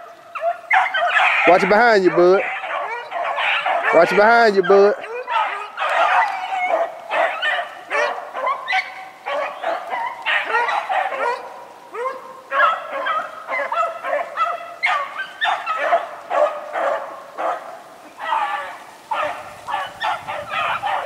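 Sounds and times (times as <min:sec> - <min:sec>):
hounds baying: 0:00.0 - 0:21.0.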